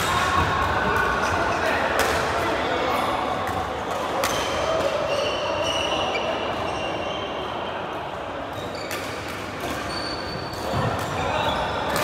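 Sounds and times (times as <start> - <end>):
shoes squeaking on court floor: 4.2 - 7.4, 8.5 - 12.0.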